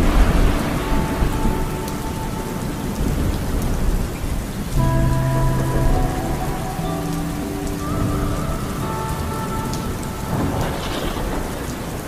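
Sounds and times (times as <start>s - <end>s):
music with held notes: 0.0s - 11.7s
rain on car windshield and roof: 0.0s - 12.0s.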